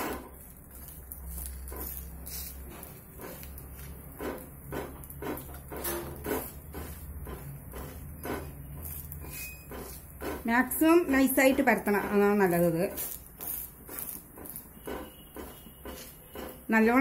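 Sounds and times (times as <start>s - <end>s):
spatula tapping on pancake: 3.2s - 16.7s.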